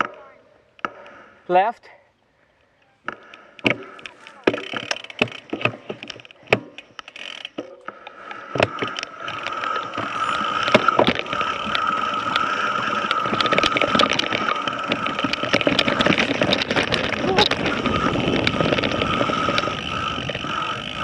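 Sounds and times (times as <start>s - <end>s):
bike freehub ratchet buzzing: 3.9s - 21.0s
chain and frame rattling: 8.7s - 21.0s.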